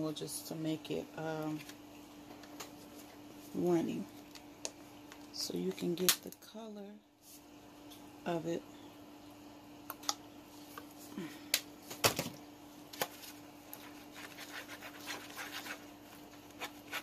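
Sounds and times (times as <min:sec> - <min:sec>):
plastic spoon scraping a bowl: 0:13.8 - 0:15.9.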